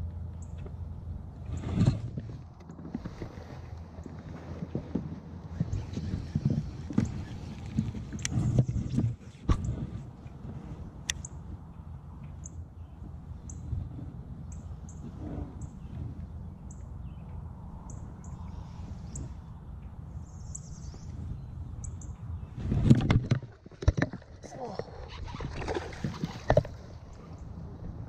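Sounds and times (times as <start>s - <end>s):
low background rumble: 0.0s - 25.2s, 25.8s - 28.0s
small birds chirping: 14.4s - 22.6s.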